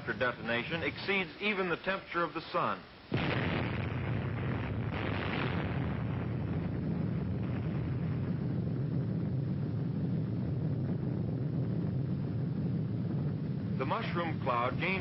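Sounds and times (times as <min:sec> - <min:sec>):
explosion roar and rumble: 0:03.1 - 0:15.0.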